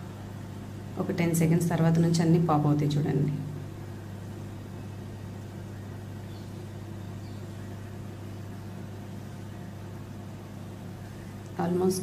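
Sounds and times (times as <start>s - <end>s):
microwave oven humming: 0.0s - 12.0s.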